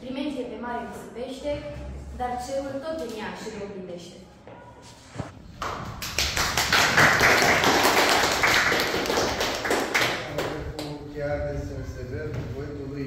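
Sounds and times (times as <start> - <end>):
small group clapping: 5.5 - 11.0.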